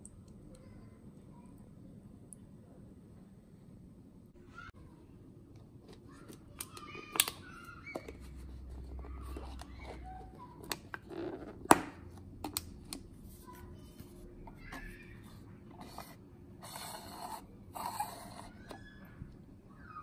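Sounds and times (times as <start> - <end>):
plastic lid clicks and crinkles: 6.3 - 8.2.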